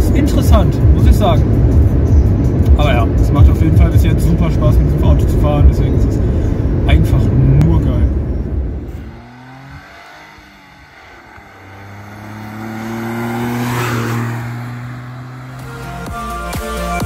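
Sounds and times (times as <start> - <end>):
car driving past: 6.7 - 17.0.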